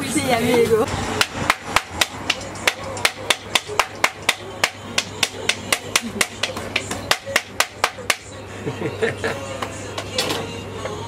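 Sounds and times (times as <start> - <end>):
utensil tapping on griddle: 1.2 - 8.4.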